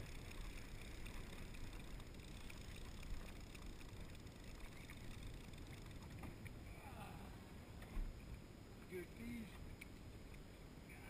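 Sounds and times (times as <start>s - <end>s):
fishing reel cranking: 0.0s - 6.2s
water: 0.0s - 11.0s
wind: 0.0s - 11.0s.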